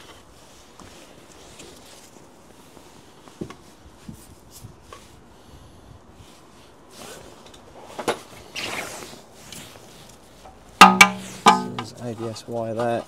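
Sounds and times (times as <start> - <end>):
rustling scrape: 6.2 - 10.5, 11.2 - 13.0.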